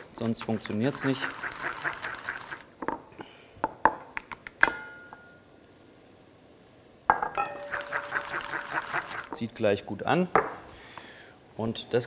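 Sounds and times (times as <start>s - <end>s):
utensil clinking against bowl: 7.1s - 8.3s.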